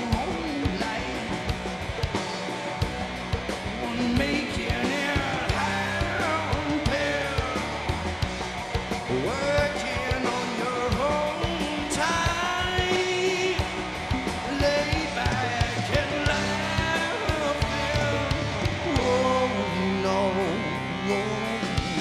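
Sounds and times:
man singing: 0.0 - 2.4, 3.7 - 8.0, 9.1 - 22.0
live rock band playing: 0.0 - 22.0.

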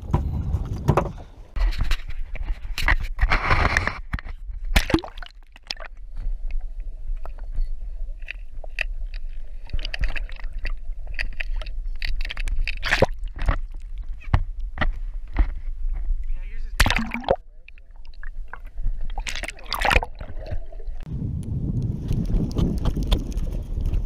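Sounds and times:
water slapping against boat hull: 16.8 - 17.4.

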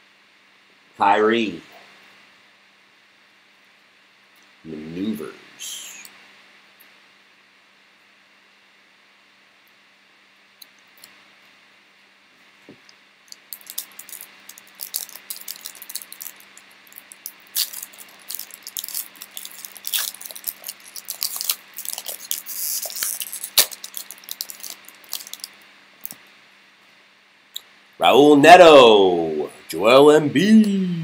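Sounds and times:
foil wrapper tearing and crinkling: 13.3 - 26.2
wrapper snap: 13.3 - 26.2.

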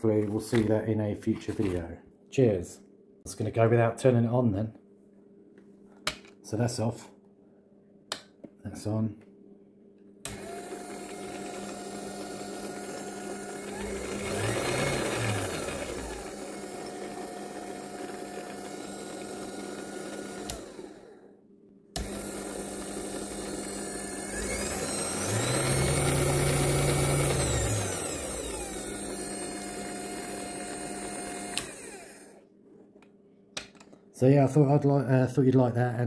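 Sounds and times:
lathe motor whine: 10.3 - 21.2, 22.0 - 32.4.

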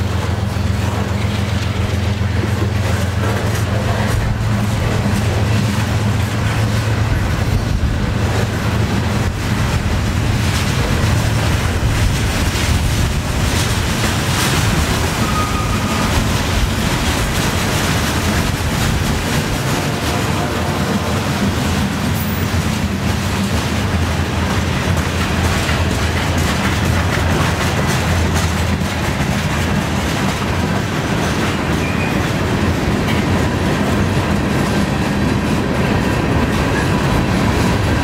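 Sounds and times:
freight train wheels rumbling on rails: 0.0 - 38.0
thin squeal: 15.2 - 16.1.

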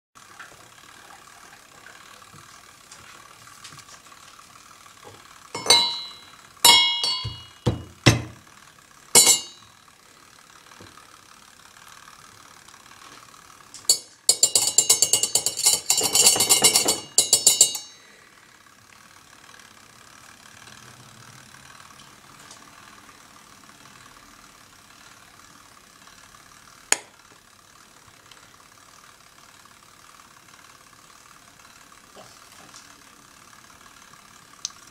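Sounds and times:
pestle clinking in brass mortar: 5.6 - 8.4, 9.2 - 9.6, 13.9 - 18.0.

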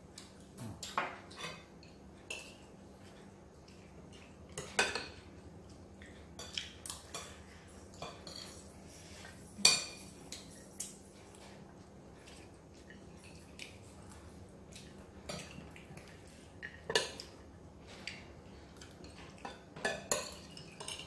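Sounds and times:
cutlery clinking on plates: 0.7 - 2.7, 4.5 - 5.2, 18.8 - 21.0.

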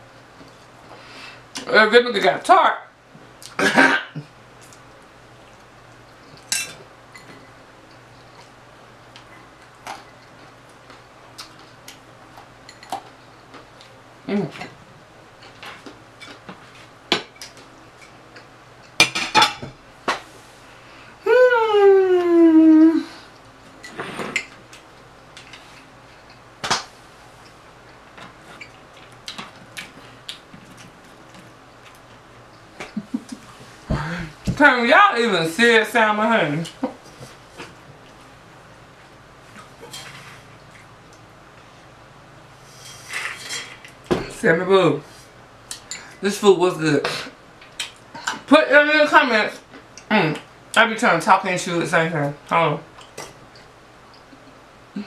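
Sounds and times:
woman humming mmm: 21.2 - 23.3.

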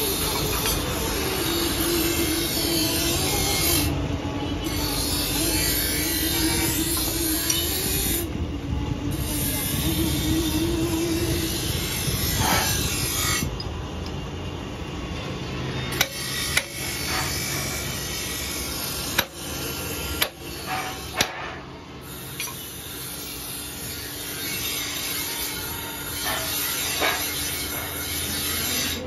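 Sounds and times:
steady machine noise: 0.0 - 29.0
power hammer striking metal: 11.8 - 13.5, 15.9 - 21.7, 22.3 - 22.7, 24.5 - 28.5.

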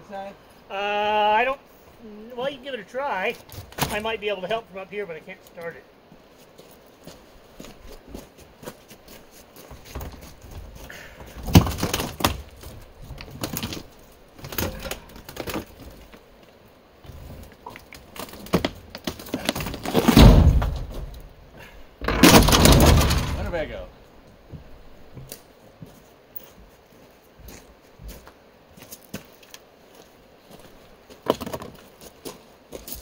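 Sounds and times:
wooden panels cracking and creaking: 11.2 - 16.2, 17.1 - 21.4, 22.0 - 23.9
crash: 19.6 - 21.3, 22.0 - 23.7
heavy thud: 19.6 - 21.4, 22.0 - 23.8.

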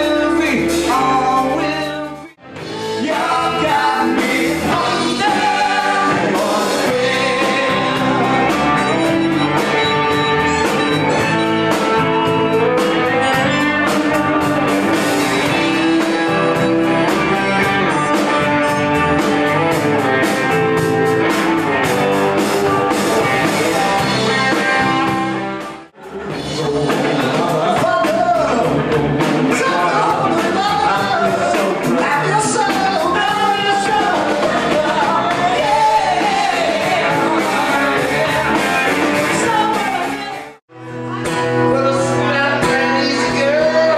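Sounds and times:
men singing: 0.0 - 18.0, 26.0 - 40.5, 41.6 - 43.9
drums: 0.0 - 43.9
electric guitar: 0.0 - 43.9.

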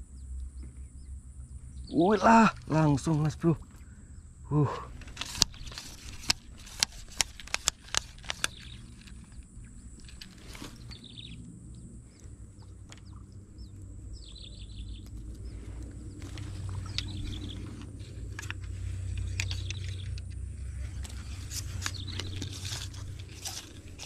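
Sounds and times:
birds chirping: 0.0 - 24.0
low outdoor rumble: 0.0 - 24.0
fishing pole clicks and taps: 5.0 - 11.0, 16.2 - 20.4.

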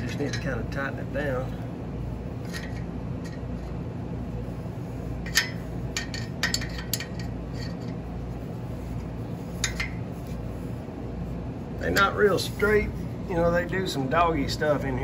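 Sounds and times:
wrench clinking on metal fitting: 0.0 - 0.8, 5.2 - 8.0
steady low hum: 0.0 - 15.0.

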